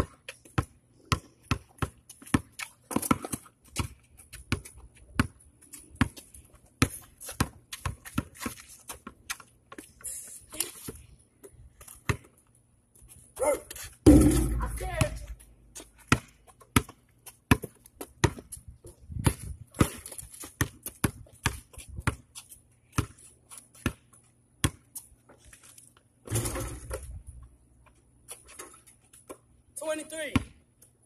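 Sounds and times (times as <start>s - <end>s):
basketball bouncing on pavement: 0.0s - 9.9s, 11.8s - 12.4s, 13.4s - 25.0s, 30.2s - 30.6s.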